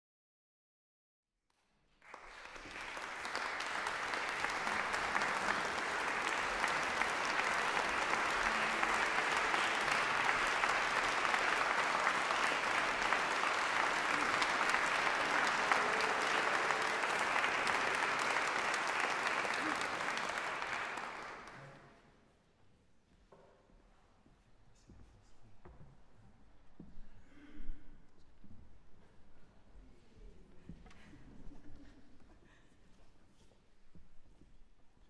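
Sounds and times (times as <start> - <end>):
audience clapping: 1.5 - 21.8.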